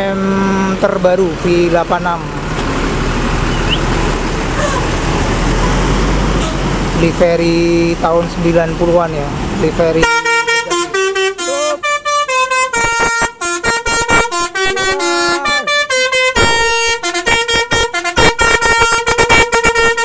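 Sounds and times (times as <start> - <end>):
musical air horn tune: 6.4 - 6.7, 10.0 - 20.0.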